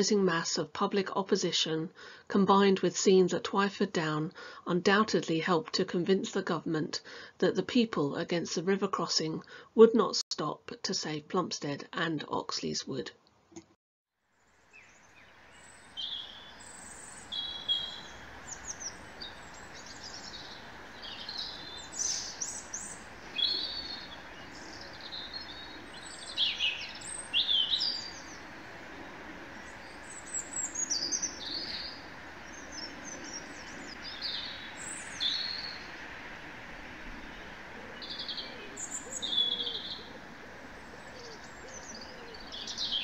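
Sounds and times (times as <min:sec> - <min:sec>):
background hiss: 0:14.3 - 0:43.0
songbirds singing: 0:14.6 - 0:43.0.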